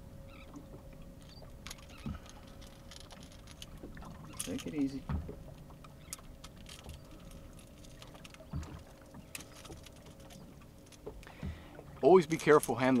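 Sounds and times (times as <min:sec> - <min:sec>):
low thumps on boat deck: 0:05.0 - 0:05.6, 0:08.4 - 0:09.3, 0:11.0 - 0:12.0.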